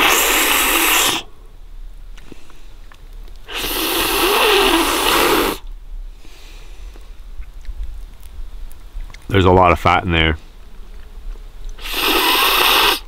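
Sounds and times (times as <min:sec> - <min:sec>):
person slurping fish head: 0:00.0 - 0:01.3, 0:11.8 - 0:13.0.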